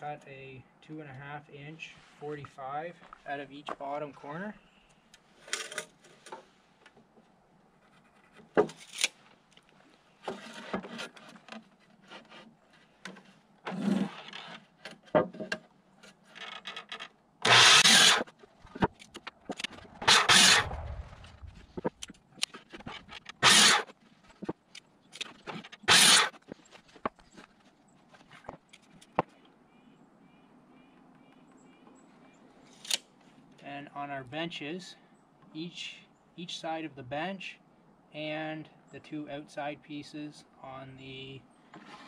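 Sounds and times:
boards scraping and knocking: 10.2s - 27.6s
miter saw cutting wood: 17.4s - 18.3s, 20.0s - 21.0s, 23.3s - 23.9s, 25.8s - 26.4s.

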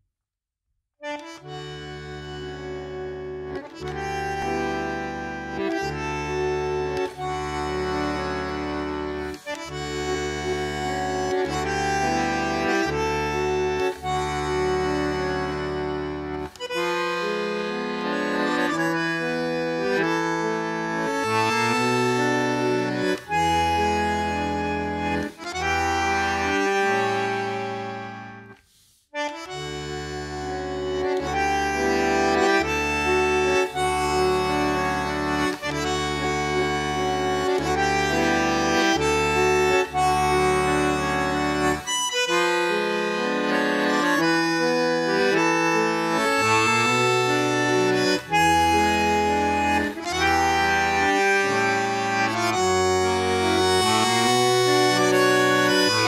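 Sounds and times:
bandoneon playing tango: 1.0s - 56.0s.

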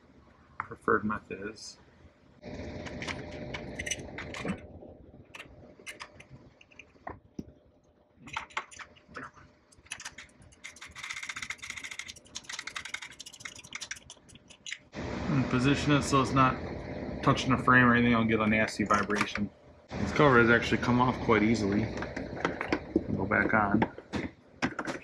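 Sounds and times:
metal tools clinking: 3.6s - 4.6s.

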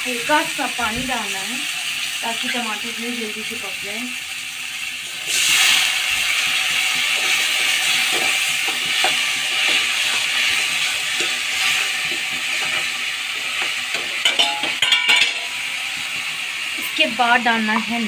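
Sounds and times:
masala hissing and sizzling: 0.0s - 18.0s
spoon scraping through masala: 6.7s - 14.2s.

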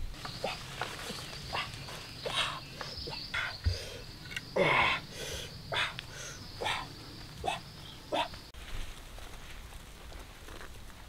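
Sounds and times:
high insect drone: 0.0s - 8.5s.

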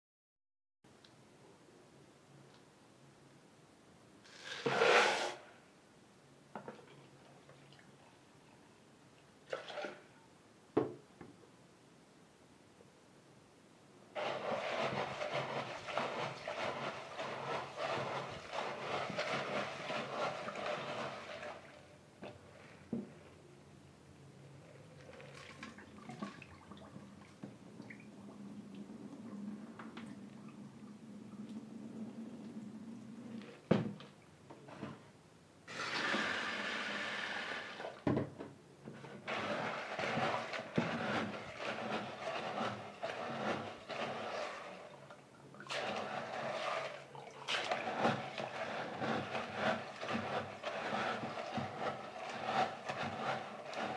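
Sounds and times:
water sloshing in a tub: 9.4s - 10.2s, 14.2s - 23.2s, 24.8s - 34.3s, 39.0s - 53.9s
water splashing: 25.1s - 30.6s, 45.6s - 50.6s.

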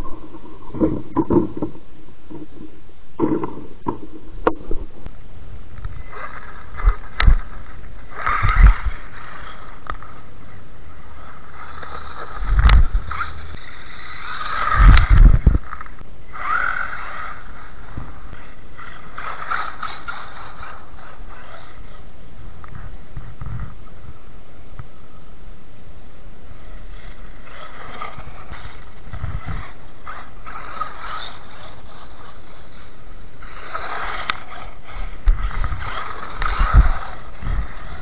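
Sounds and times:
toy car motor whining: 5.9s - 22.0s, 26.6s - 38.0s.

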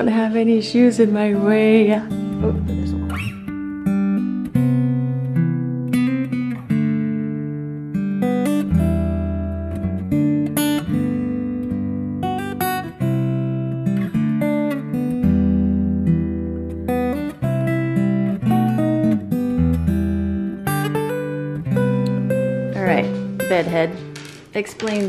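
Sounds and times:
acoustic guitar picking and strumming: 0.0s - 25.0s.

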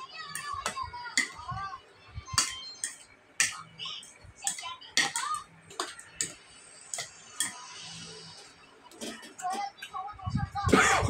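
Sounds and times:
utensils tapping on dishware: 0.3s - 1.4s, 2.3s - 3.7s, 4.5s - 7.6s.

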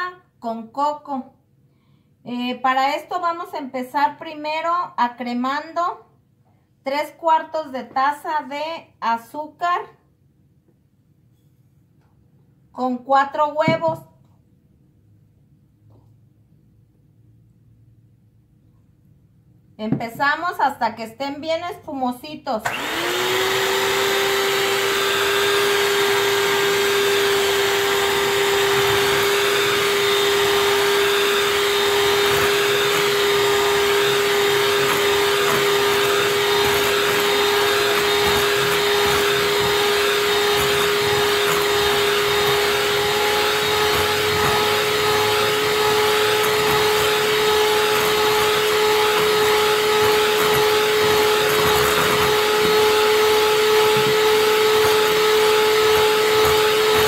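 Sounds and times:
electric hand mixer whirring: 22.6s - 57.0s.

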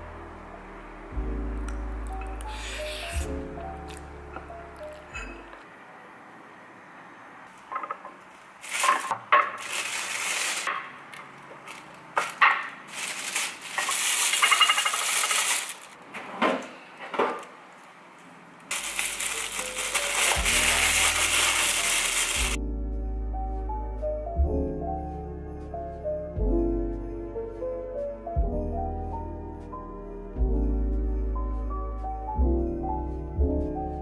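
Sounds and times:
plastic bag rustling: 8.5s - 16.0s, 18.7s - 22.6s
frozen fruit chunks clacking: 18.7s - 22.6s.

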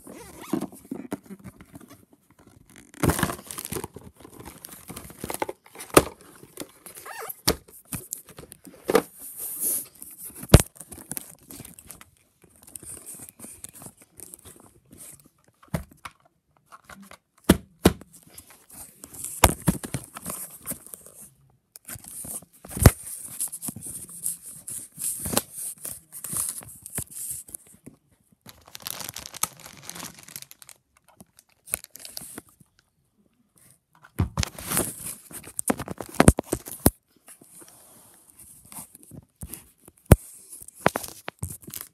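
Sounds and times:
packaging tearing and rustling: 2.5s - 6.0s, 28.5s - 32.3s.

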